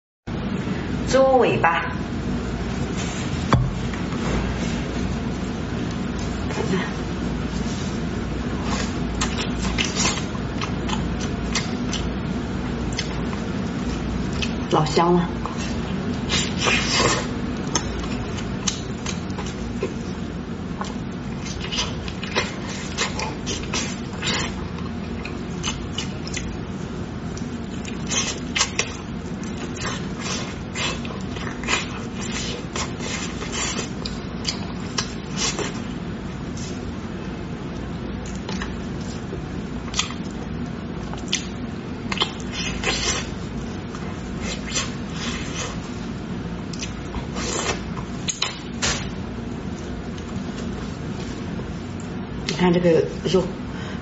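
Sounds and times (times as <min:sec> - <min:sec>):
low steady hum: 0:00.3 - 0:54.0
wet chewing and lip smacks: 0:08.7 - 0:12.1, 0:12.9 - 0:14.6, 0:15.4 - 0:26.6, 0:27.2 - 0:35.9, 0:37.7 - 0:45.9, 0:46.6 - 0:51.3
sucking and smacking mouth sounds: 0:41.1 - 0:46.0.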